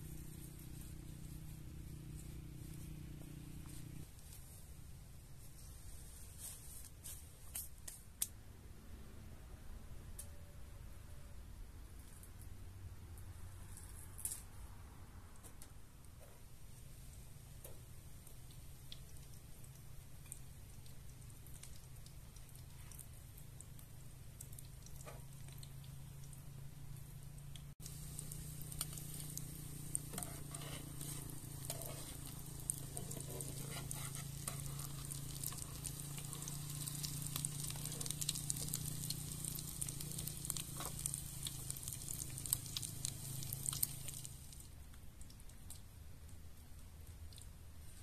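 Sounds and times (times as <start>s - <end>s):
patties sizzling in hot oil: 17.4s - 26.4s, 27.0s - 44.7s
crackling oil pops: 27.6s - 44.6s.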